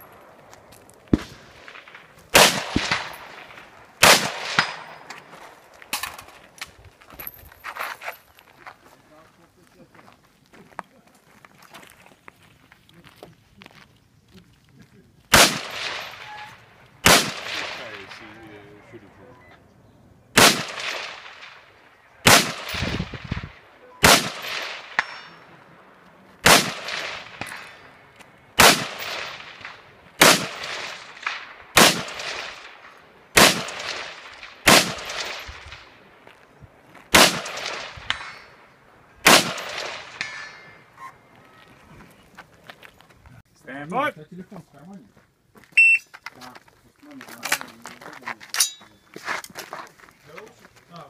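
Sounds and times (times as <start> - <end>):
rifle shots with echo: 0.1 - 6.2, 15.3 - 18.6, 20.4 - 36.3, 37.1 - 40.9.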